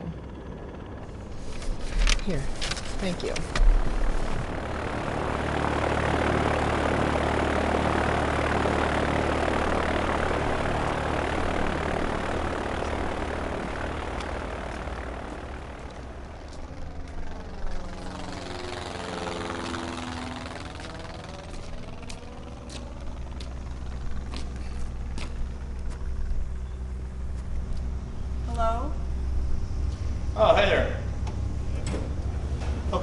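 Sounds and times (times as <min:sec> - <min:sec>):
propeller aircraft flying past: 0:00.0 - 0:33.0.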